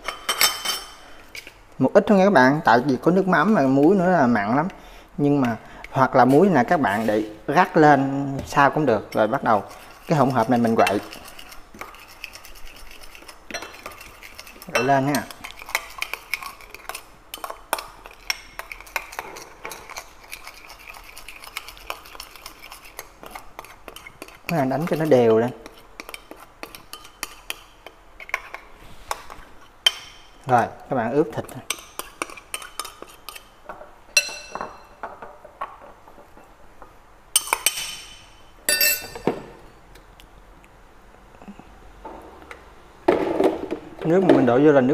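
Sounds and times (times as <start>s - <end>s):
metal spoon stirring in ceramic bowl: 8.5s - 30.6s, 31.4s - 35.0s
metal spoon clinking on ceramic bowl: 14.6s - 15.8s, 34.2s - 35.0s, 37.4s - 39.3s.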